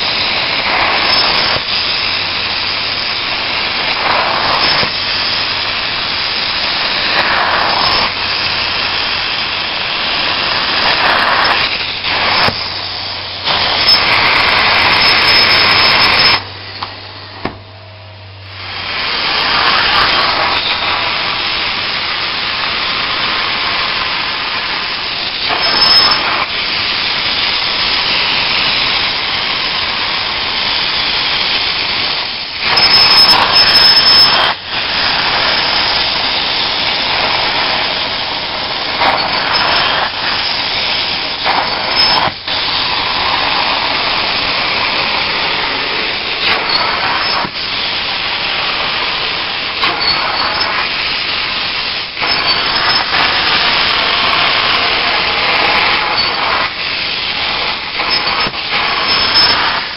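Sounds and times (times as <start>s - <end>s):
steam cleaner suction hiss: 0.0s - 59.9s.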